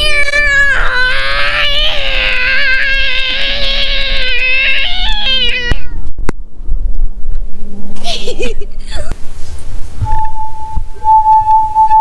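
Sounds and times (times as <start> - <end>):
high-pitched wavering wail: 10.0 - 12.0.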